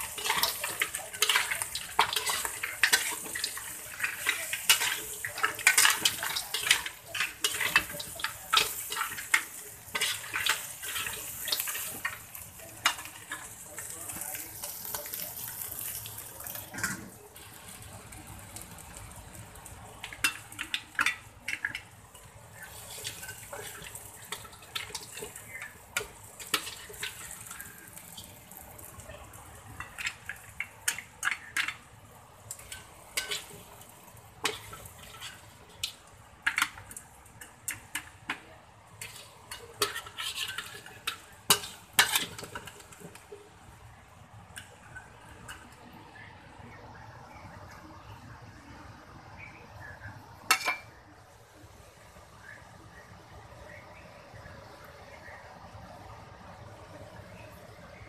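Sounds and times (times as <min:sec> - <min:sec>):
utensil scraping a wok: 0:00.0 - 0:17.8, 0:19.9 - 0:43.3
hot oil sizzling: 0:00.0 - 0:58.0.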